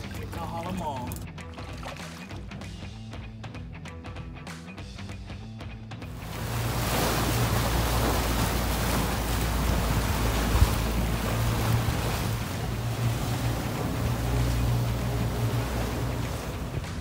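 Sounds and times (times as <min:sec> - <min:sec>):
background music: 0:00.0 - 0:17.0
boat engine drone: 0:06.1 - 0:17.0
water rushing past hull: 0:06.1 - 0:17.0
wind buffeting microphone: 0:06.1 - 0:17.0.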